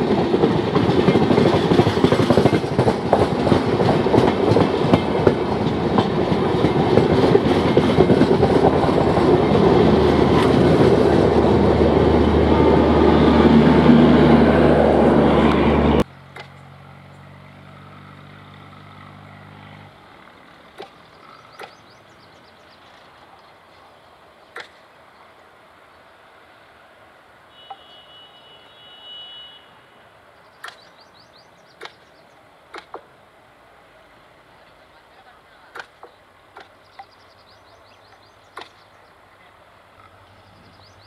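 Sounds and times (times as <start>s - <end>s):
train wheels clattering on rails: 0.0s - 12.4s.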